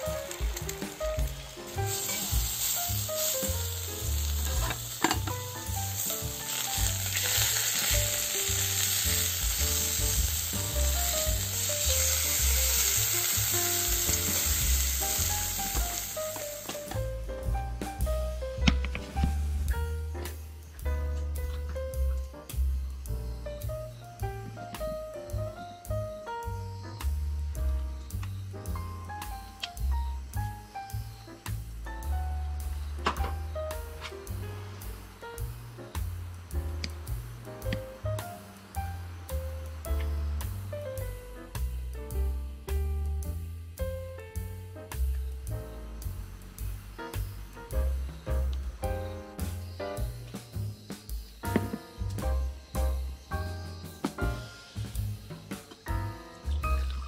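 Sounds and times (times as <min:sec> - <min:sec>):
steak sizzling in a skillet: 0:00.0 - 0:17.3
background music: 0:00.0 - 0:57.0.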